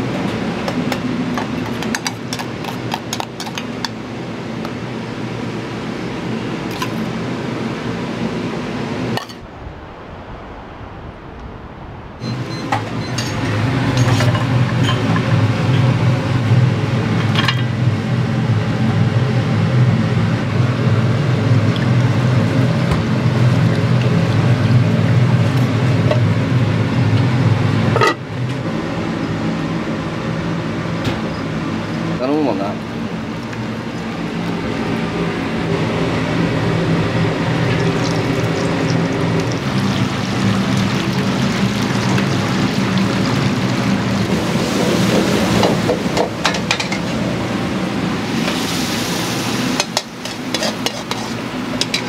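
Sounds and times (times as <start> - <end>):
gas burner and extractor roar: 0.0 - 52.0
utensils and dishes clinking: 1.4 - 4.0, 12.5 - 15.9, 49.8 - 52.0.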